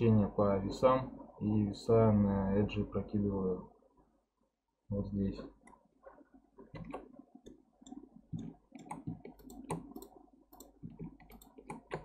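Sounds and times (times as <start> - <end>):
mouse and keyboard clicking: 6.8 - 12.0.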